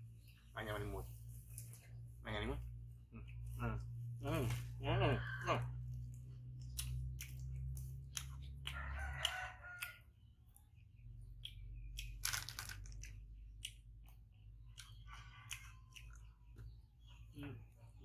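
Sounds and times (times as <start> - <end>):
rooster crowing: 8.6 - 10.2
crackers crunching: 11.9 - 14.0
plastic wrapper crinkling: 12.2 - 13.0.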